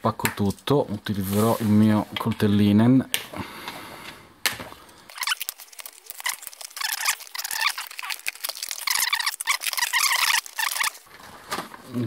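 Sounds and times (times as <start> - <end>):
packaging rustling and scraping: 5.1 - 12.0.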